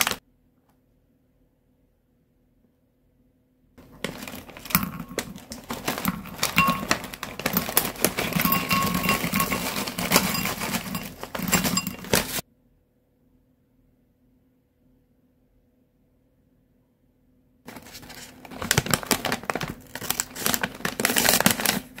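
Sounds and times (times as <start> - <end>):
snack bag crinkling: 0.0 - 0.2, 3.8 - 12.4, 17.7 - 22.0
snacks clattering into glass bowl: 3.8 - 12.4.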